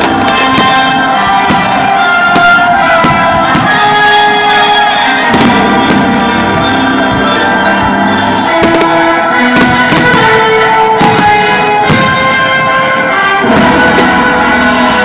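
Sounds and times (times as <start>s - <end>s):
fireworks bursting with bangs: 0.0s - 15.0s
music with long held notes: 0.0s - 15.0s.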